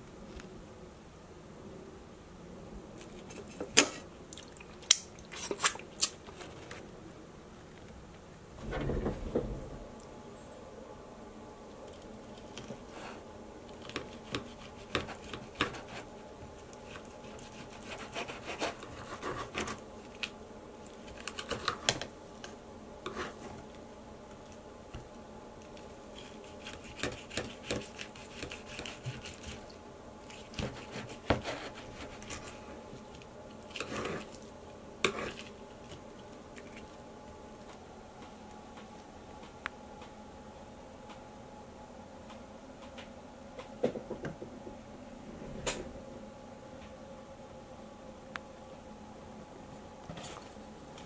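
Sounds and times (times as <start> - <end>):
knife sawing through steak: 17.2 - 19.6.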